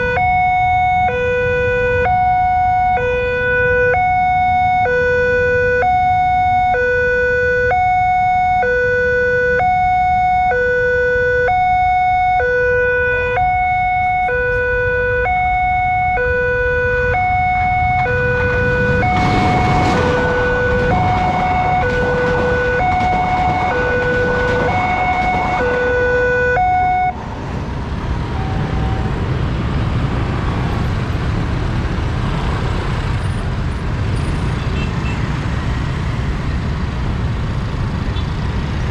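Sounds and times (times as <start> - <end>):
level crossing alarm two-tone wail: 0.0 - 27.2
road traffic: 0.0 - 38.9
motorcycles: 16.6 - 26.2
diesel locomotive passing: 17.8 - 26.2, 26.9 - 33.2.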